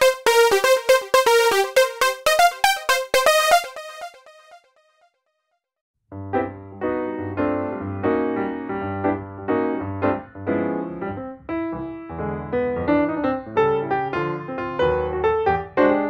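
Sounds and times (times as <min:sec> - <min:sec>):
keyboard chords over bass: 0:00.0 - 0:04.3.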